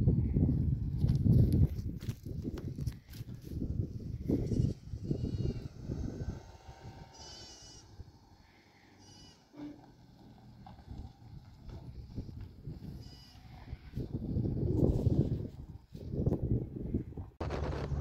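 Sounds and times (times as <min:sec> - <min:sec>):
low rumbling noise: 0:17.1 - 0:18.0.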